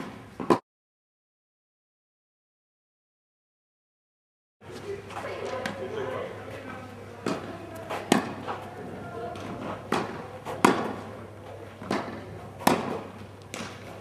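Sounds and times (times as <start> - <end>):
ball bouncing on court: 7.2 - 8.6, 9.3 - 11.1, 11.8 - 13.9
tennis racket hitting ball: 7.2 - 8.7, 9.3 - 11.2, 11.8 - 14.0.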